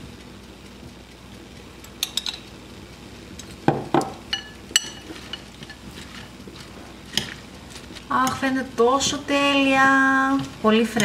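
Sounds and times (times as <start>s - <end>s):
metal spoon clinking on glass: 2.0s - 2.5s, 4.3s - 5.8s.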